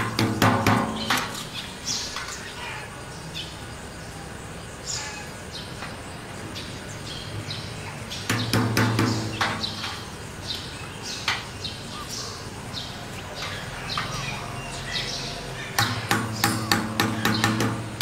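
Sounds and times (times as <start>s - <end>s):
birds chirping: 0.0s - 18.0s
hand tool tapping plastic pipe: 15.8s - 18.0s.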